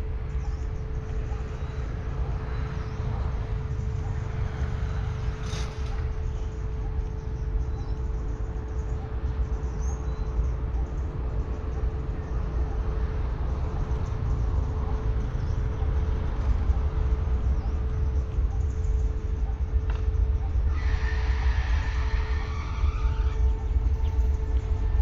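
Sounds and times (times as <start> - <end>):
faint constant hum: 0.0 - 25.0
low rumble: 0.0 - 25.0
faint bird chirps: 5.3 - 13.1.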